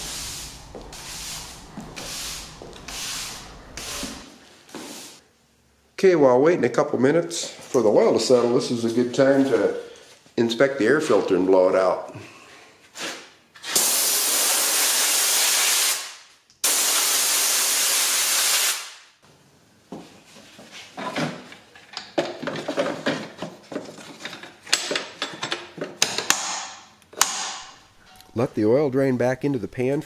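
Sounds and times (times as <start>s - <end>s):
compressed air blow gun hissing: 0.0s - 5.2s.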